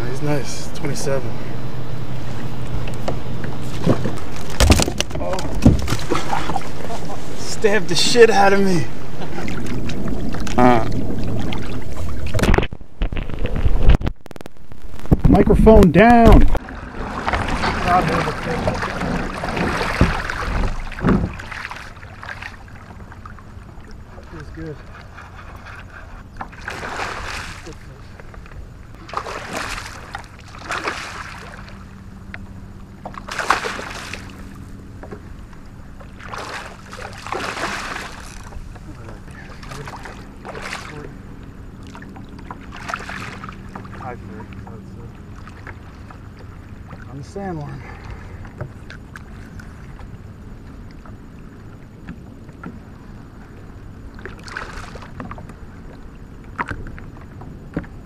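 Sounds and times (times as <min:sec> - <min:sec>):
water splashing against kayak: 0:00.0 - 0:15.2, 0:16.0 - 0:58.0
light clicks of tackle: 0:31.6 - 0:47.1, 0:47.9 - 0:58.0.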